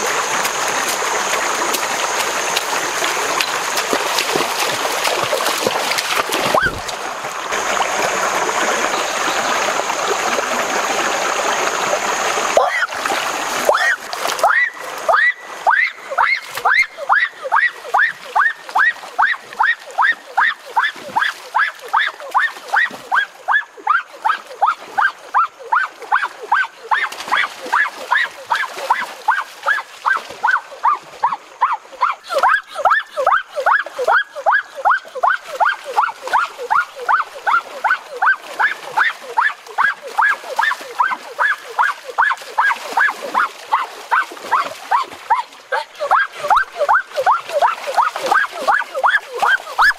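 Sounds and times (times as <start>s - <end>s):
animal yelping call: 12.6s - 13.0s, 13.7s - 49.9s.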